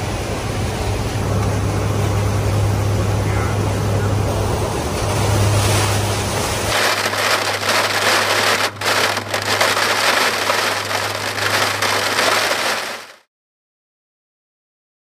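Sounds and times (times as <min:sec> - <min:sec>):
turboprop engines droning: 0:00.0 - 0:06.7
rain beating on aircraft: 0:06.0 - 0:13.3.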